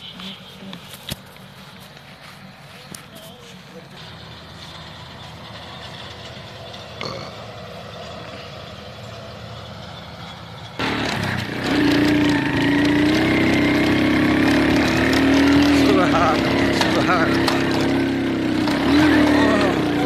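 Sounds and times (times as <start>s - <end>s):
highway traffic hum: 0.0s - 20.0s
motorcycle engine under load: 0.1s - 20.0s
truck crossing bridge: 3.6s - 20.0s.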